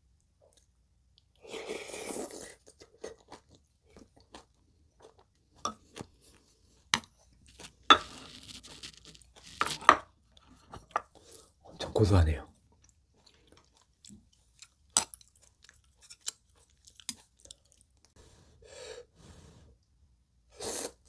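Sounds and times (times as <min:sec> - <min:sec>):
chewing with wet mouth smacks: 0:02.6 - 0:06.6, 0:12.7 - 0:18.1.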